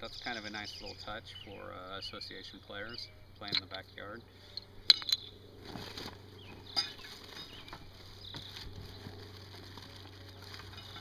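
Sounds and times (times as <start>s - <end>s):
plastic wrapping rustling: 6.9s - 11.0s.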